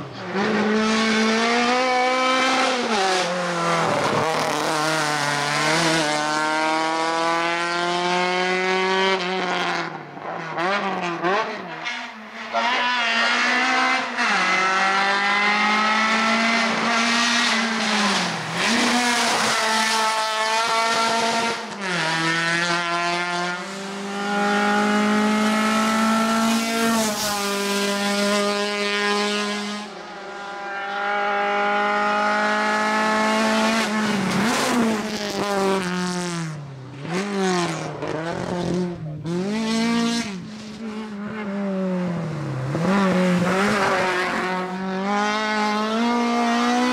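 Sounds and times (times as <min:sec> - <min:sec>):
race car engine revving: 0:00.0 - 0:46.9.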